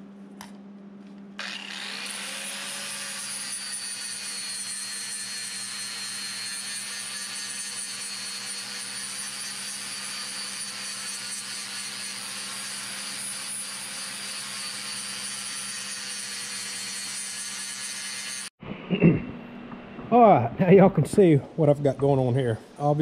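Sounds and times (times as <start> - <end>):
angle grinder grinding steel: 1.4 - 18.5.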